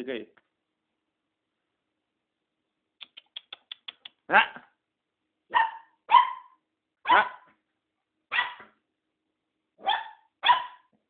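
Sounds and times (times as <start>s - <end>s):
puppy barking: 5.5s - 7.6s, 8.3s - 8.8s, 9.8s - 11.0s.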